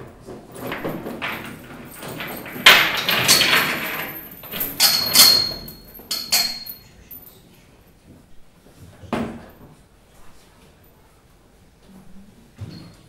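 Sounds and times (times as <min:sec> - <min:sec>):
suitcase catches knocking and clacking: 0:00.3 - 0:06.6.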